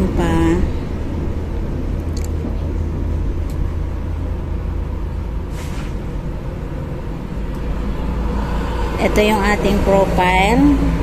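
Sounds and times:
low rumble: 0:00.0 - 0:11.0
short hiss: 0:05.5 - 0:06.0.

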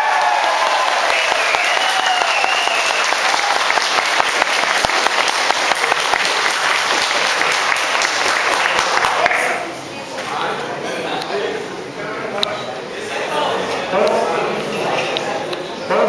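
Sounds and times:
crowd applauding: 0:00.0 - 0:09.7.

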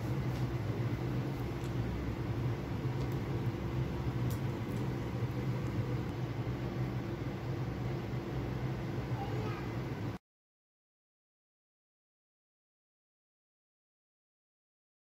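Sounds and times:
mechanical hum with hiss: 0:00.0 - 0:10.2.

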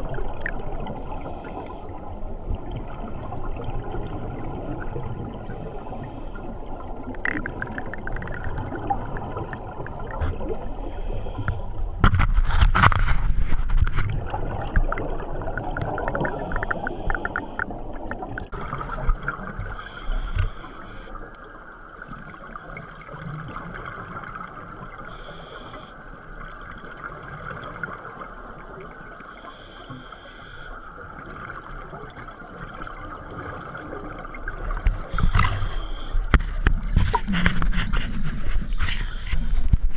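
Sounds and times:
scuba regulator bubbling: 0:00.0 - 0:21.4, 0:29.3 - 0:39.9
short regulator hisses: 0:35.1 - 0:36.2.

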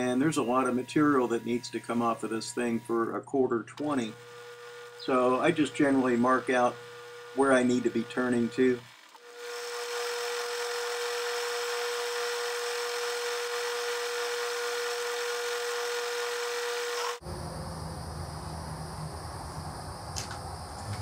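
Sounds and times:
faint high chirring: 0:00.0 - 0:02.9
metal lathe cutting steel: 0:00.0 - 0:03.0, 0:03.8 - 0:17.2
low hum: 0:17.2 - 0:21.0.

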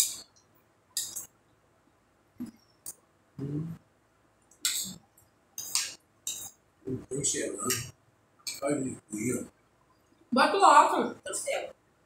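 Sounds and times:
low voice hum: 0:03.4 - 0:03.8, 0:06.9 - 0:07.9.

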